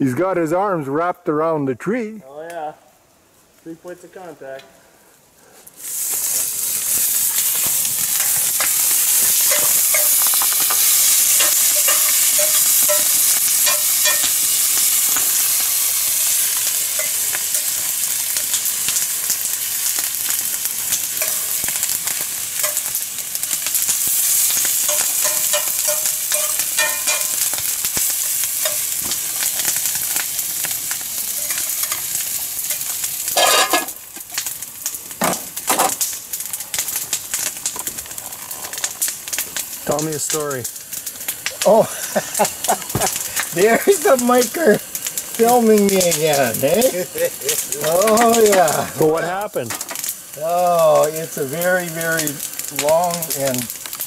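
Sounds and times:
food sizzling in a frying pan: 5.5s - 54.0s
utensil tapping and scraping: 7.6s - 15.7s, 24.9s - 27.6s.

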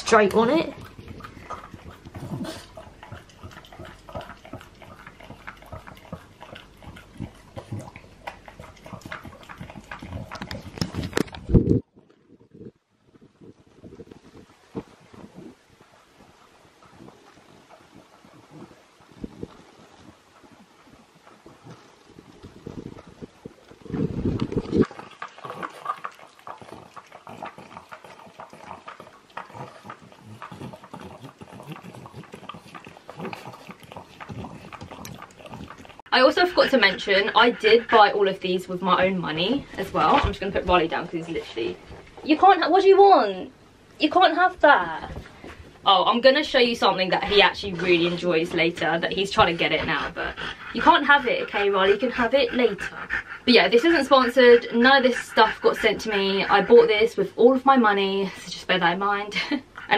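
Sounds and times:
dog licking a mat: 0.0s - 11.8s, 23.9s - 42.4s, 46.3s - 57.3s.

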